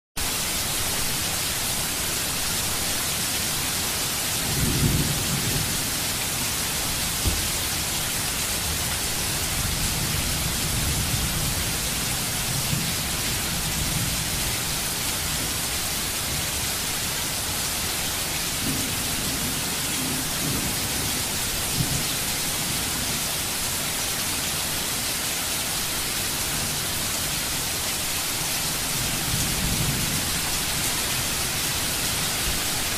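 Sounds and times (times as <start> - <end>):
heavy rain hiss: 0.2 - 32.9.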